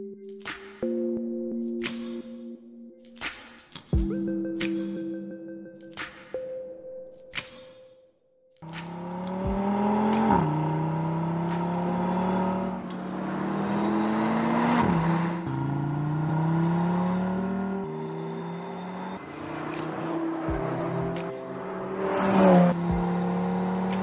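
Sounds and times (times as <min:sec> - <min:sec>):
car engine accelerating hard: 0:08.6 - 0:24.0.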